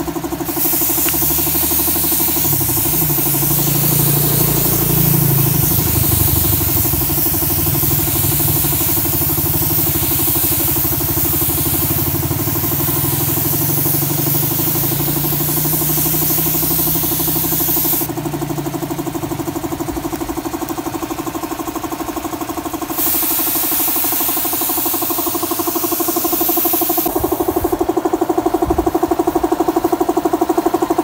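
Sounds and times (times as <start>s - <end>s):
air compressor running: 0.0s - 31.0s
spray gun hissing: 0.3s - 18.1s, 22.9s - 27.8s.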